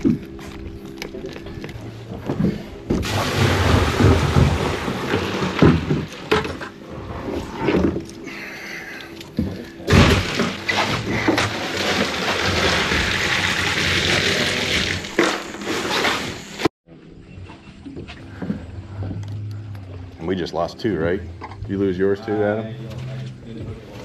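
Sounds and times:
steady low hum: 0.0s - 13.0s, 14.4s - 24.0s
water rushing and sloshing: 3.0s - 8.3s.

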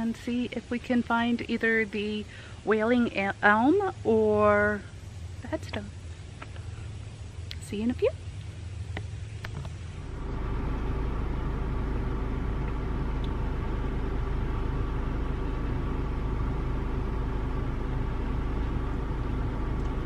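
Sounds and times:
car engine idling: 9.3s - 20.0s.

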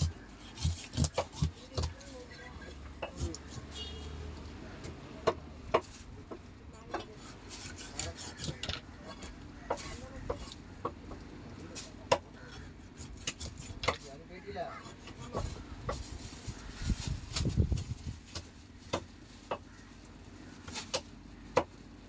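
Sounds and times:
fish being cut on blade: 0.0s - 2.0s, 7.2s - 8.7s, 12.9s - 14.0s.

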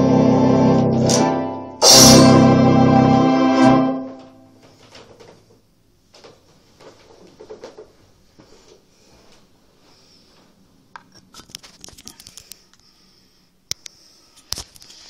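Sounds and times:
electronic organ chord: 0.0s - 4.6s.

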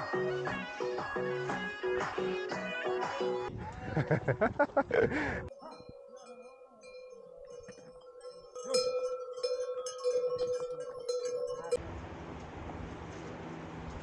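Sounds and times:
animal bells jangling: 5.5s - 11.8s.

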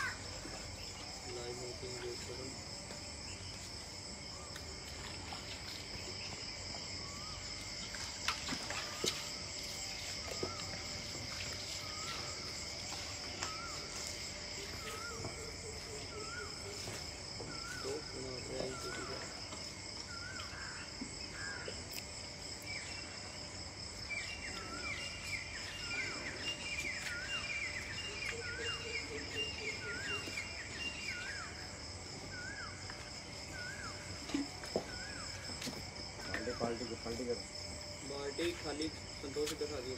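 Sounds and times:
insects chirring: 0.0s - 39.9s.

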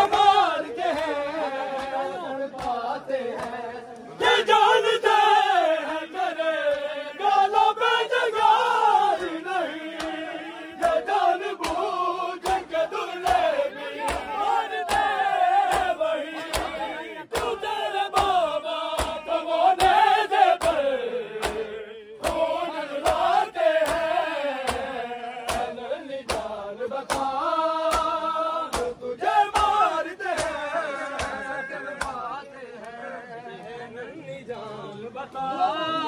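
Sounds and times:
men chanting together: 0.0s - 36.0s
rhythmic chest beating strikes: 10.8s - 30.6s.

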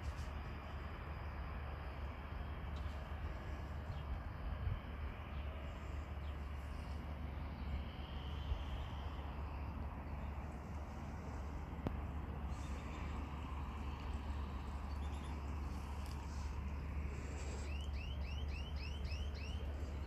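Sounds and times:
steady low rumble: 0.0s - 20.0s.

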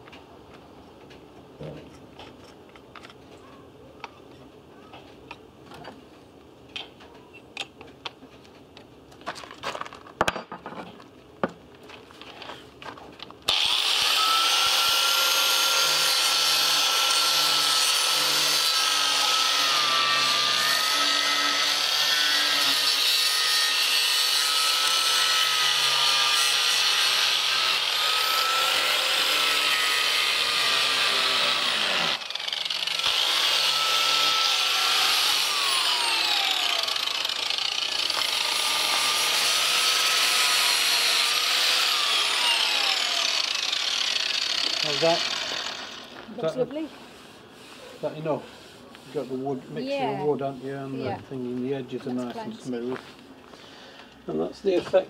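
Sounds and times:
angle grinder grinding wood: 13.5s - 51.6s.

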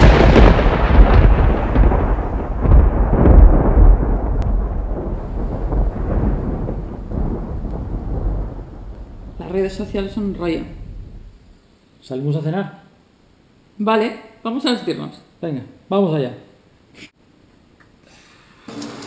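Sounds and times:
rain: 0.0s - 11.6s, 18.6s - 19.0s
rolling thunder: 0.0s - 11.6s.

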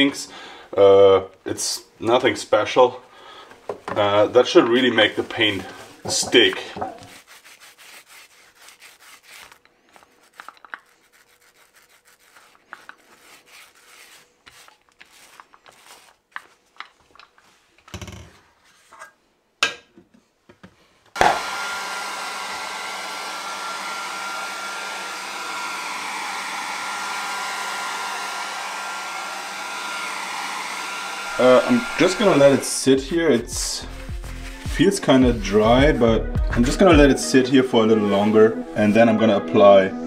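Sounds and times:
foam roller rubbing and clicking: 4.8s - 17.4s
hair dryer running: 21.2s - 33.8s.

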